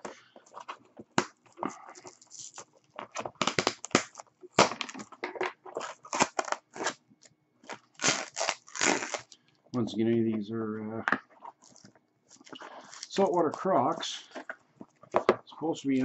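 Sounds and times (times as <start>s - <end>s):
tape and cardboard tearing: 2.0s - 5.1s, 5.7s - 7.0s, 7.6s - 9.3s.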